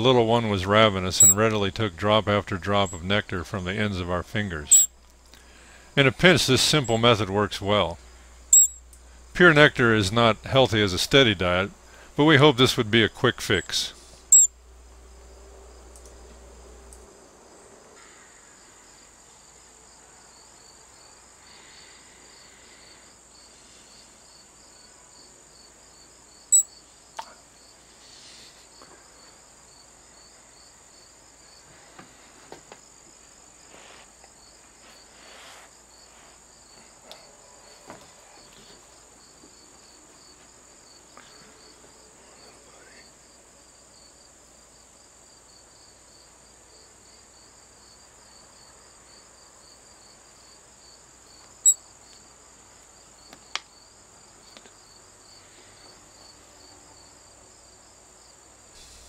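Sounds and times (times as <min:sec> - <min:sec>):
insect chorus trilling: 0:04.7 - 0:09.5, 0:14.3 - 0:15.9, 0:17.5 - 0:59.0
faint soft rustles: 0:33.2 - 0:36.5.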